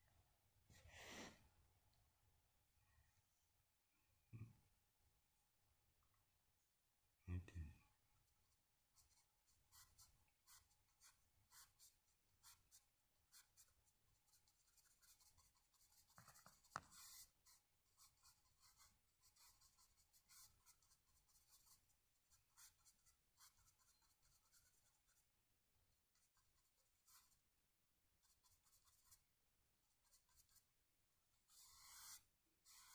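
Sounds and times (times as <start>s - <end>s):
bristle paintbrush strokes: 8.9s - 25.2s, 31.4s - 32.9s.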